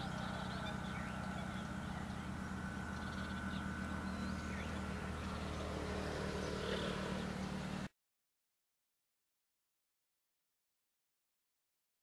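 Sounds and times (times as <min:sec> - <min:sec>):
faint high whine: 0:00.0 - 0:07.9
steady low hum: 0:00.0 - 0:07.9
wetland birds chirping: 0:00.0 - 0:07.9.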